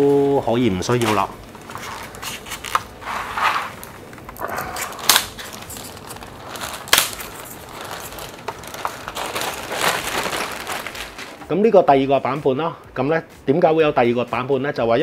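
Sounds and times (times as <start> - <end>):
plastic bag crinkling: 0.8 - 11.6.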